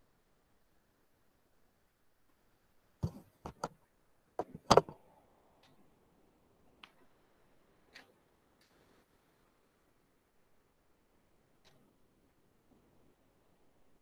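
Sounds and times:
short sharp clicks and knocks: 3.0s - 3.8s, 4.4s - 5.0s.

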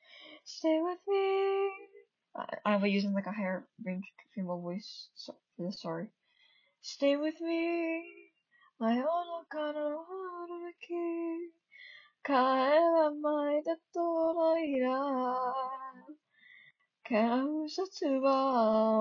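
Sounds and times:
woman singing unaccompanied: 0.0s - 3.6s, 6.8s - 8.2s, 8.8s - 11.5s, 12.2s - 16.2s, 17.1s - 19.0s.

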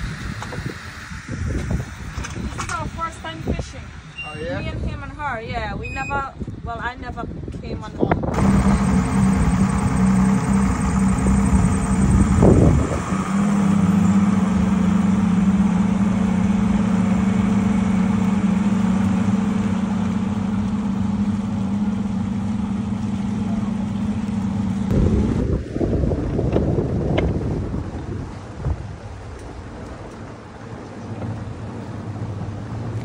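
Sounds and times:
wind buffeting microphone: 0.0s - 23.0s, 24.9s - 33.0s
outboard motors idling: 8.3s - 33.0s.

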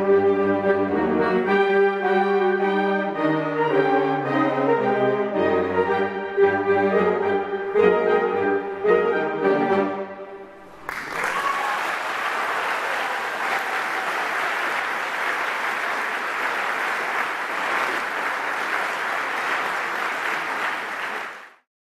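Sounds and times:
audience applauding: 10.6s - 21.7s.

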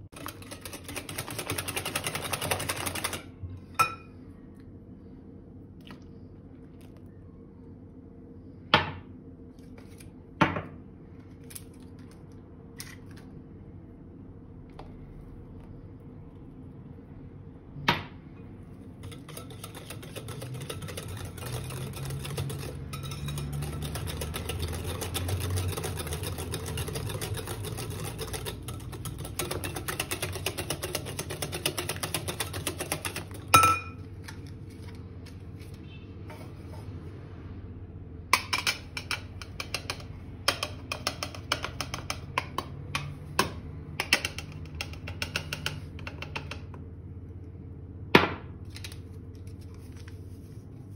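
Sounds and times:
whisk beating in glass bowl: 0.0s - 4.0s, 18.8s - 34.0s, 38.4s - 46.6s
utensils tapping a bowl: 19.0s - 34.0s, 38.4s - 46.8s.

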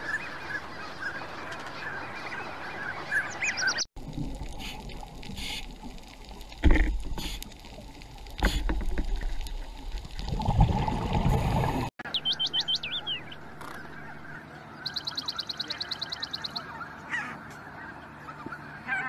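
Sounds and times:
rushing water swell: 9.4s - 11.9s
high bending bird calls: 12.1s - 19.0s.

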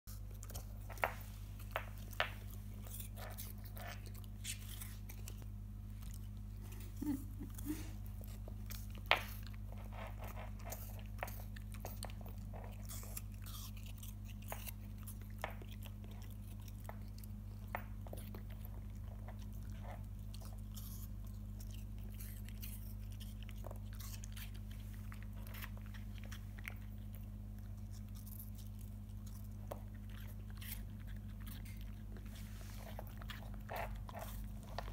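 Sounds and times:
puppy crunching apple: 0.1s - 34.9s.

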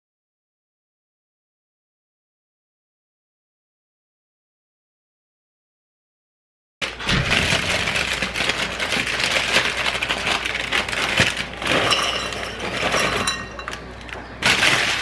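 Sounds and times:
plastic bag crinkling: 6.8s - 15.0s.

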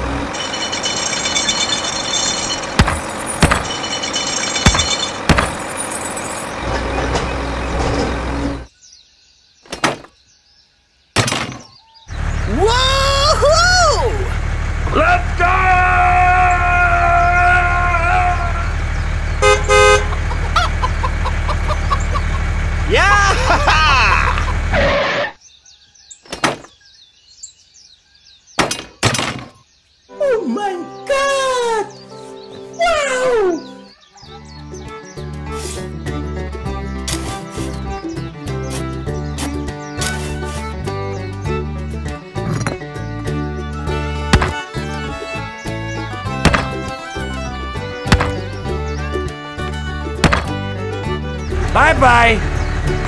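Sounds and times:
truck engine running: 0.0s - 8.7s, 12.1s - 25.1s, 34.5s - 53.0s
small birds chirping: 0.3s - 7.8s, 8.6s - 14.2s, 16.4s - 24.7s, 25.4s - 53.0s
sharp knocks: 2.8s - 3.8s, 4.6s - 5.7s, 9.7s - 10.1s, 11.2s - 11.7s, 44.3s - 44.7s, 46.4s - 47.0s, 48.0s - 48.5s, 50.2s - 50.6s.

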